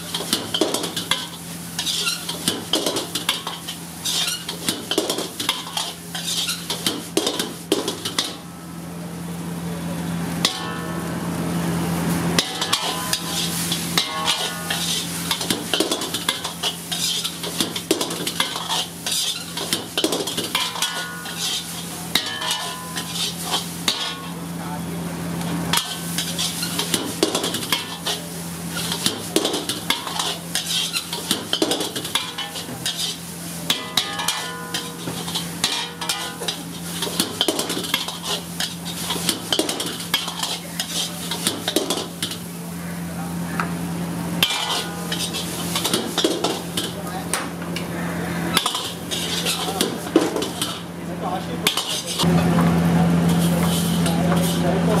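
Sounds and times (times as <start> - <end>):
noodles sizzling: 0.0 - 55.0
steel ladle clanking on wok: 10.4 - 11.1, 12.4 - 24.4, 28.8 - 42.4, 44.4 - 47.0.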